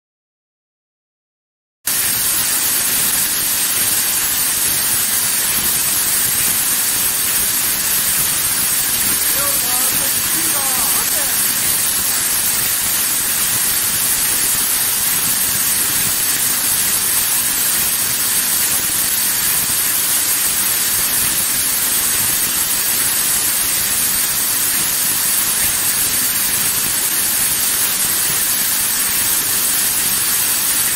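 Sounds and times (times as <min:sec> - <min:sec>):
machine hiss: 0:01.9 - 0:30.9.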